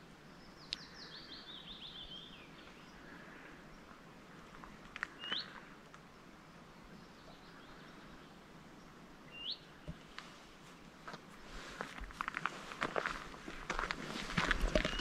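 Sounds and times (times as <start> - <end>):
faint outdoor hiss: 0.0 - 15.0
songbird whistled call: 9.3 - 9.7.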